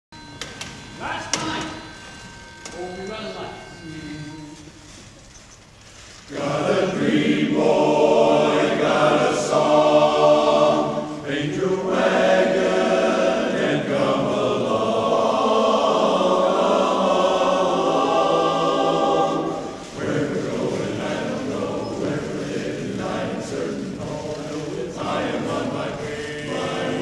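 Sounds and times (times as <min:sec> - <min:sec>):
men's chorus singing: 0:06.3 - 0:27.0.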